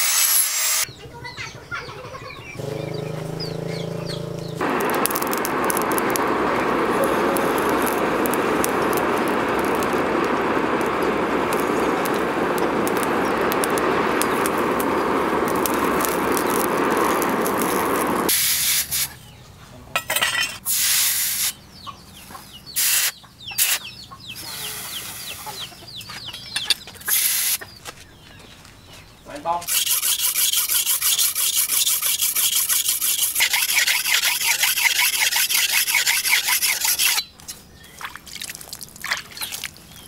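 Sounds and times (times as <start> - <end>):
forge fire rushing hiss: 2.6 - 19.2.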